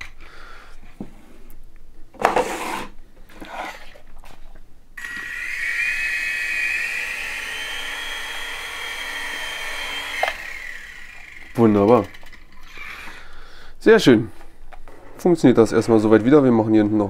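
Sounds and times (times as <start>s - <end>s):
electric rotor motor whine: 5.0s - 13.1s
toy helicopter knocks and rustles: 11.4s - 12.9s.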